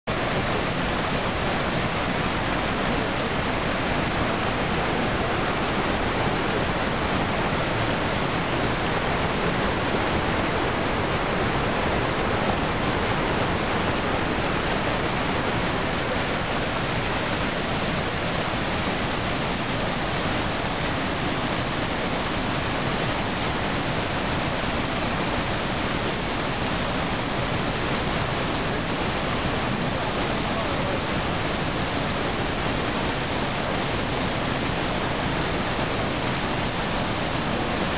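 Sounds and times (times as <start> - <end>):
mountain stream rushing over boulders: 0.0 - 37.9.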